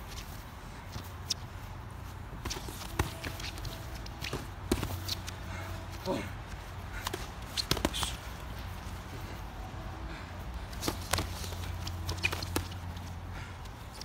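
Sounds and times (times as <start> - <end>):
shuffling footsteps on grass: 0.0 - 13.0
steady low hum: 0.0 - 14.0
boxing gloves smacking: 2.3 - 5.7, 6.9 - 9.0, 10.6 - 14.0.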